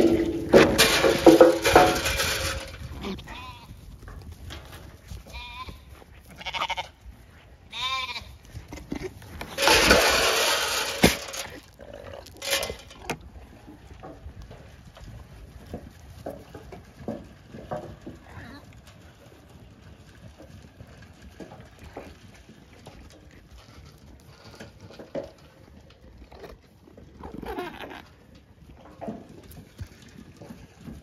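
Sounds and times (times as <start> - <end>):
lambs bleating: 3.0 - 3.7, 5.3 - 7.0, 7.7 - 8.4
loud rustling: 9.6 - 11.5.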